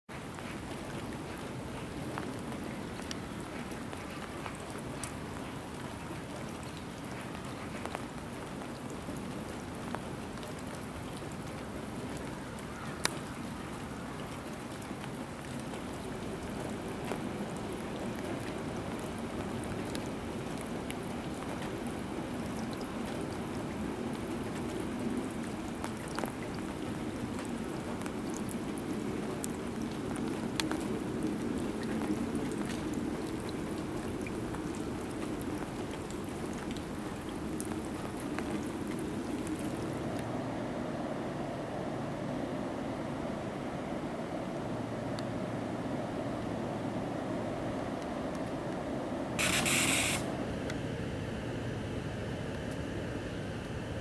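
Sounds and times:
rain on wet tarmac: 0:00.1 - 0:54.0
sharp drips and taps: 0:00.2 - 0:40.3.

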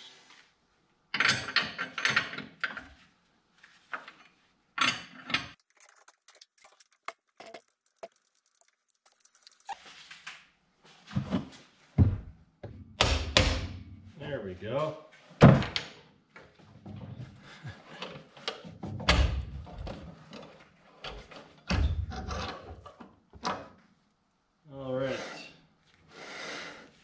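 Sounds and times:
metal parts clinking and rattling: 0:05.4 - 0:09.8.

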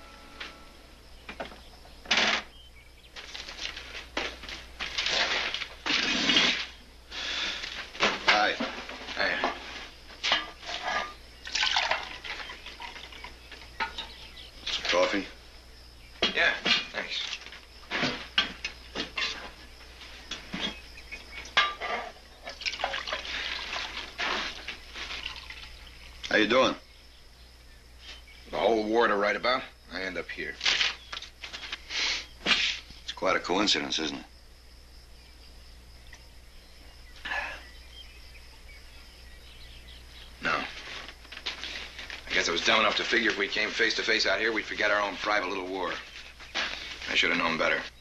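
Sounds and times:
rustling and scuffing: 0:03.1 - 0:05.9, 0:07.6 - 0:11.2, 0:16.7 - 0:22.2, 0:23.4 - 0:25.9, 0:30.6 - 0:33.0, 0:40.5 - 0:48.0
coffee pouring into cup: 0:11.5 - 0:13.3.

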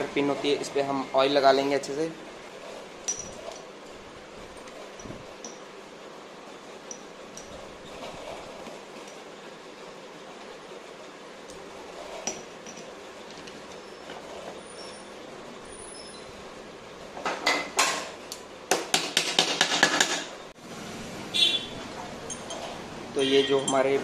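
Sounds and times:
metal parts clicking and clinking: 0:03.0 - 0:03.7, 0:22.2 - 0:24.0.

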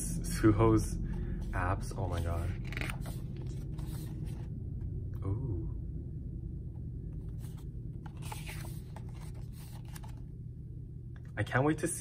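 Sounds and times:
steady low rumble: 0:00.0 - 0:12.0
paper pages rustling: 0:01.4 - 0:04.5, 0:07.3 - 0:10.3.

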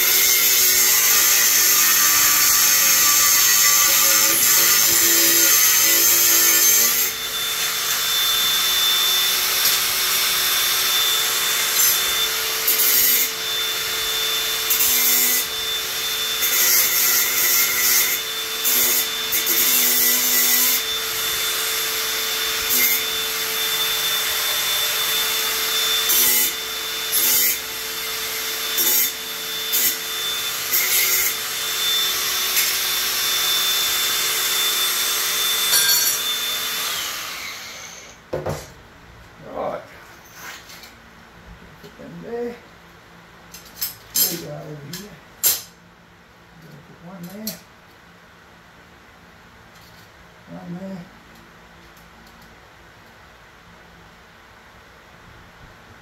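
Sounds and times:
power tool running: 0:00.0 - 0:38.2
loud whirr: 0:31.3 - 0:38.3.

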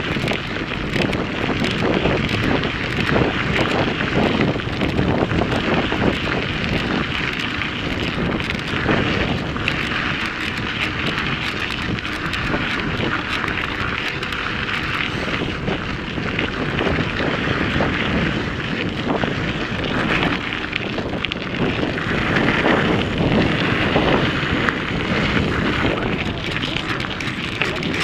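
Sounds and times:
bike rattling: 0:00.0 - 0:28.0
tyres crunching over gravel: 0:00.0 - 0:28.0
wind on microphone: 0:00.0 - 0:28.0.

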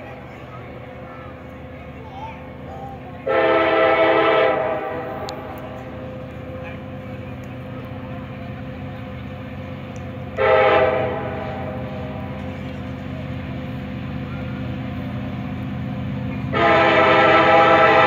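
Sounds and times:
locomotive engine rumbling: 0:00.0 - 0:18.0
locomotive air horn blasts: 0:03.2 - 0:05.8, 0:10.4 - 0:12.4, 0:16.5 - 0:18.0.

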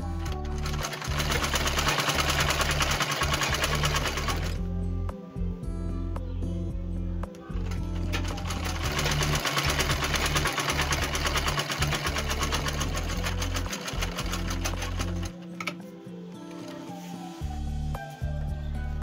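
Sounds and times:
sewing machine clatter: 0:00.0 - 0:04.6, 0:07.6 - 0:15.8.

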